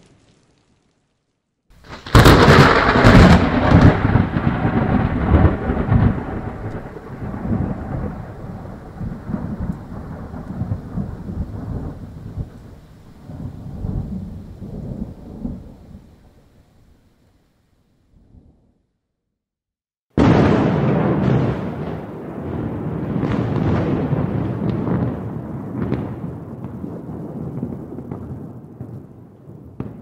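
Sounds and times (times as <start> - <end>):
thunder cracks: 1.8 - 16.6, 20.1 - 30.0
rolling thunder rumble: 1.8 - 17.0, 20.2 - 30.0.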